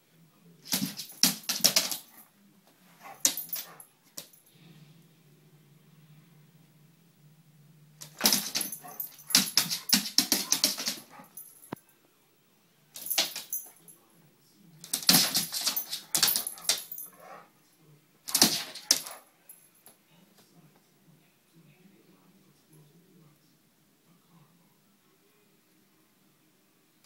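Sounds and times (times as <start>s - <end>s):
dog barking: 3.0s - 3.9s, 8.2s - 11.4s.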